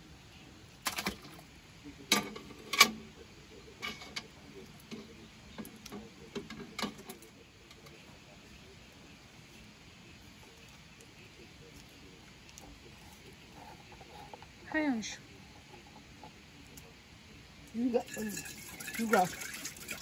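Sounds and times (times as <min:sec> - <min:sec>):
metal ladle scraping pot: 0:03.8 - 0:04.3.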